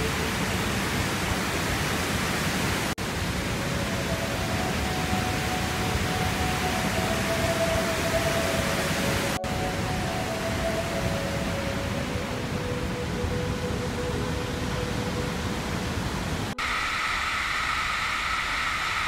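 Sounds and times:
rushing water: 0.0s - 19.0s.

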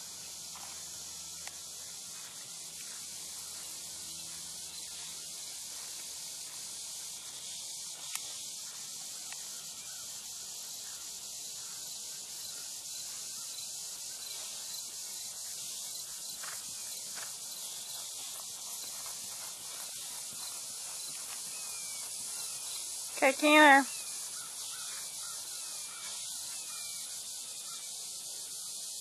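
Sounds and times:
insects hissing in grass: 0.0s - 29.0s
pony hoofbeats on turf: 16.3s - 23.7s.

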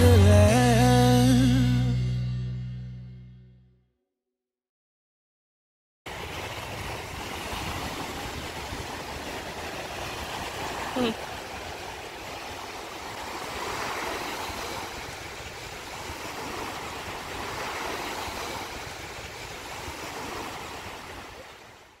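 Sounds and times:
surf washing onto beach: 6.1s - 22.0s.

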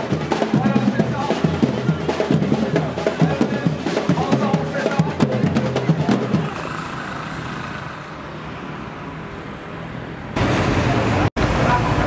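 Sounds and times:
drum beats: 0.0s - 7.6s
road vehicle noise with low hum: 5.6s - 12.0s
rush of noise: 6.0s - 9.6s.

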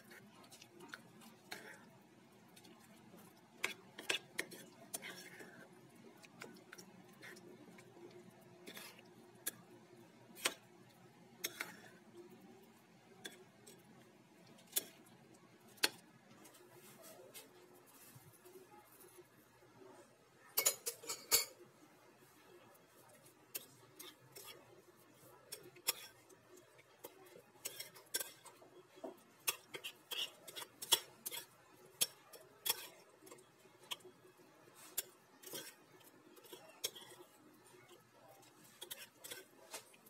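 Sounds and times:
metal spoon clinking on ceramic dish: 20.6s - 21.6s.

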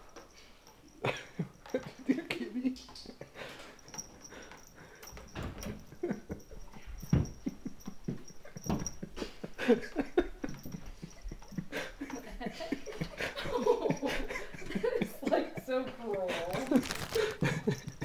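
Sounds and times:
cat breathing: 3.4s - 5.4s, 10.6s - 14.7s.

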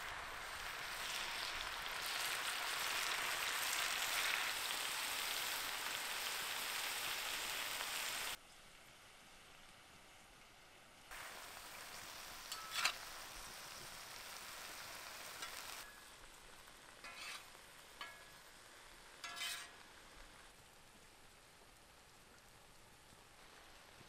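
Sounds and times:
mushrooms sizzling in a pan: 0.0s - 8.4s, 11.1s - 24.0s
fork scraping a pan: 12.5s - 13.1s, 17.0s - 18.4s, 19.2s - 19.8s.

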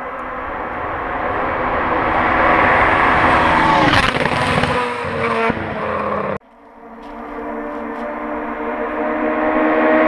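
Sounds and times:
rally car engine at full throttle: 0.0s - 10.0s.

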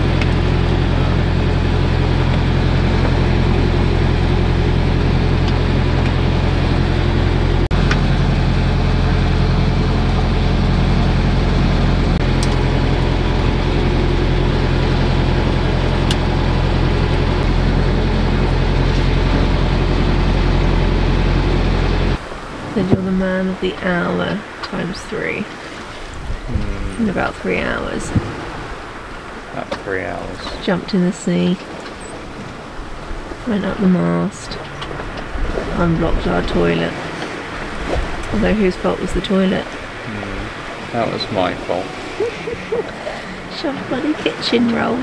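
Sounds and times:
boat engine low hum: 0.0s - 45.0s.

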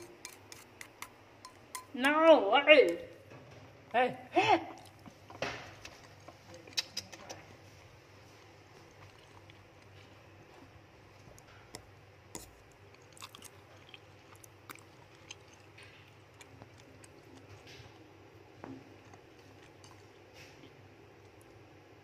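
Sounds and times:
rat chewing food: 4.8s - 21.8s.

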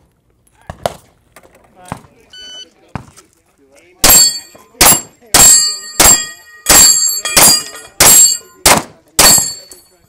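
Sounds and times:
pistol shots: 4.0s - 9.6s
ring of steel targets hit: 4.0s - 10.0s.

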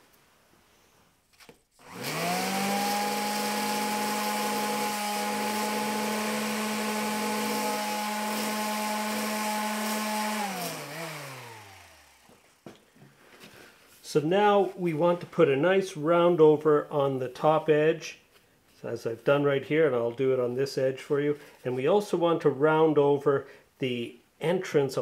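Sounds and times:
orbital sander sanding wood: 1.8s - 12.7s.

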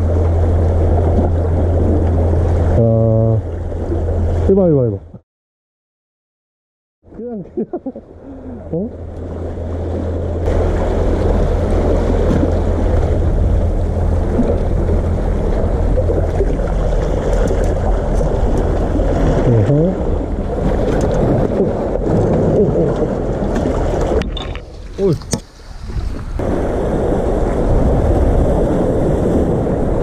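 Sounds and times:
sea water surging among concrete blocks: 7.2s - 30.0s
wind buffeting microphone: 8.6s - 30.0s.

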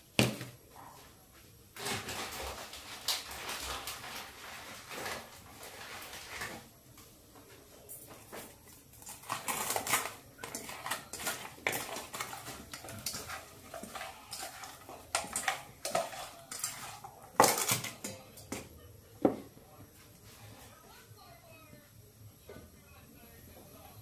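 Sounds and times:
metal pot clattering and scraping: 8.9s - 18.7s.

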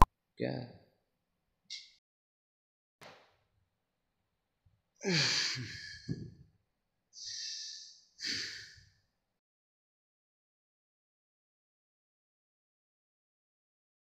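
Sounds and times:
man sighing heavily: 5.0s - 6.2s, 7.2s - 8.8s.

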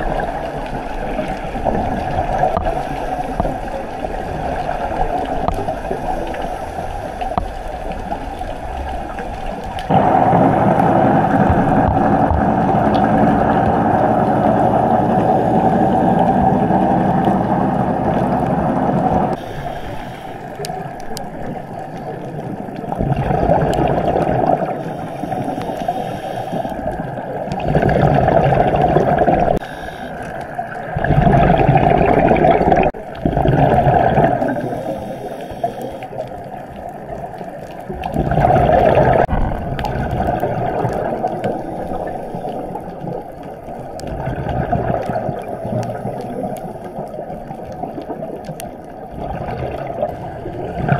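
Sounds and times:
diver breathing: 5.6s - 7.8s, 14.4s - 16.9s, 19.3s - 21.4s, 24.6s - 27.2s, 29.5s - 30.8s, 34.3s - 36.4s, 41.4s - 43.0s
regulator exhaust bubbles: 9.8s - 19.9s, 20.6s - 50.9s.

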